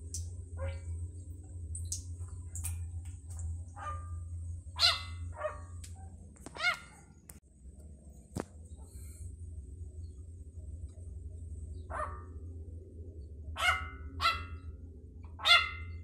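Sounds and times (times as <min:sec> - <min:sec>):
yelping animal cries: 0:04.8 - 0:05.6, 0:15.4 - 0:15.9.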